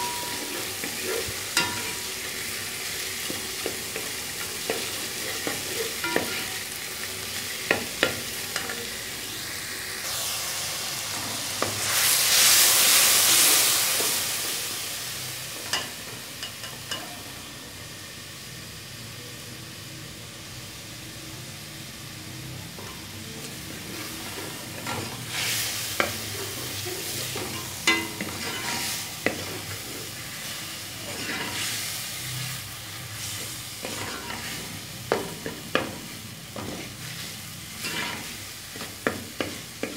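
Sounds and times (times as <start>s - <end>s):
spoon stirring against pot: 0.0s - 6.8s, 22.8s - 30.4s, 31.0s - 31.7s, 33.4s - 39.9s
onions sizzling in oil: 0.0s - 39.9s.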